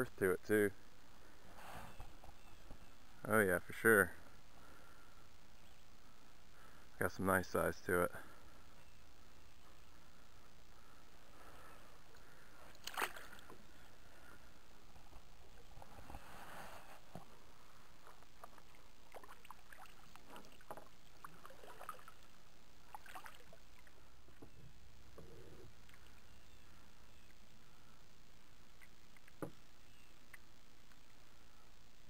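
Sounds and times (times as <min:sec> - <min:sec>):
water against hull: 0:14.9 - 0:26.3.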